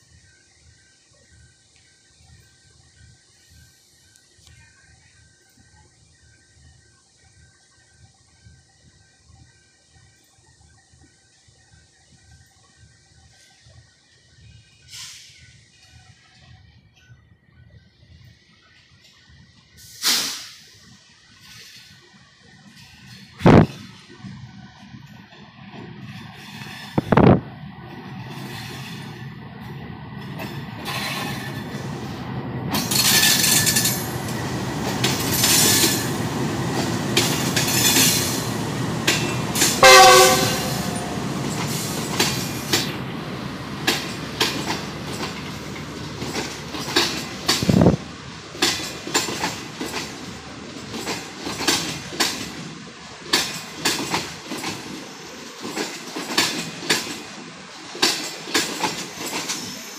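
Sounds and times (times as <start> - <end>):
diesel locomotive rumbling: 0.0 - 59.9
wheels clattering over rail joints: 32.7 - 42.9, 43.8 - 59.9
train horn: 39.6 - 41.4.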